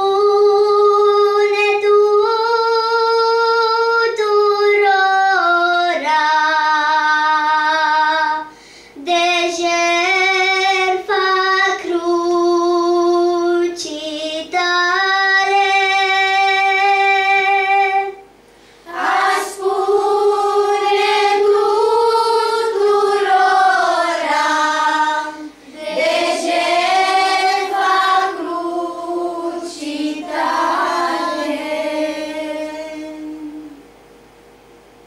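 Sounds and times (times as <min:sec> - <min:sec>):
children singing a hymn: 0:18.9 - 0:33.8.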